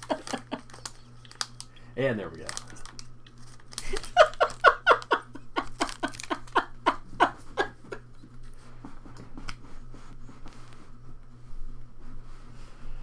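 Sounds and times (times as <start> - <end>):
person laughing hard: 0.0 - 0.9, 3.8 - 8.1.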